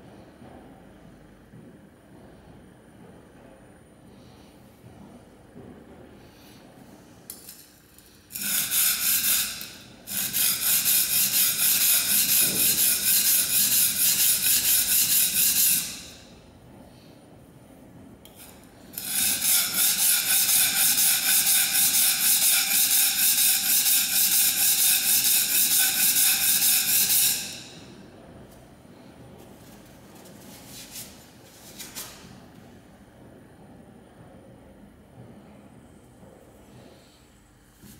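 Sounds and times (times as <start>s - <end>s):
plane iron scraping on stone: 8.3s - 16.2s, 18.9s - 27.8s.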